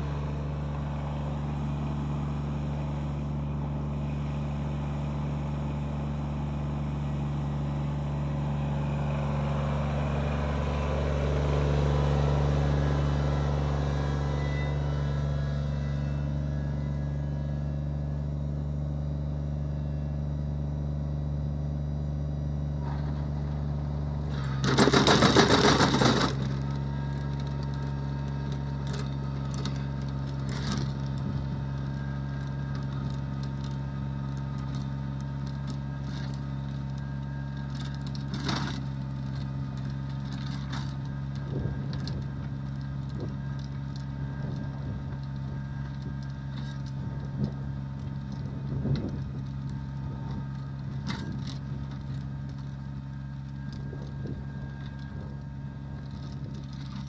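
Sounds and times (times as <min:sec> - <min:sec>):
rotary tiller in grass: 0:00.0 - 0:18.8, 0:22.8 - 0:57.0
tractor diesel engine running: 0:00.0 - 0:57.0
loud clatter: 0:24.3 - 0:26.6.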